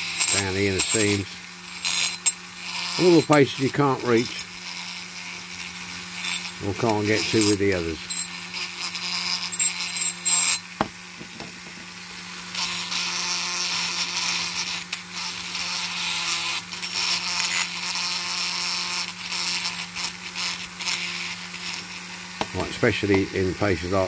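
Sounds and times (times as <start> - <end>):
wire brush scratching metal: 0.0 - 10.7
rotary tool humming: 0.0 - 24.0.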